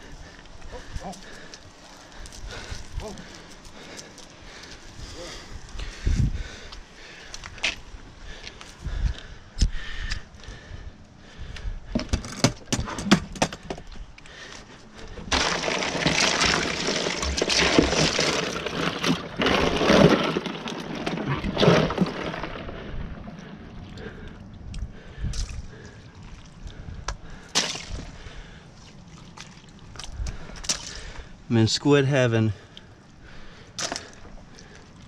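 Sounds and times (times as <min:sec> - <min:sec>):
ice crunching and clattering: 0:12.0 - 0:23.4, 0:27.5 - 0:28.2, 0:33.8 - 0:34.9
meltwater sloshing: 0:15.1 - 0:24.7, 0:25.3 - 0:31.5
plastic bags rustling: 0:15.3 - 0:22.7.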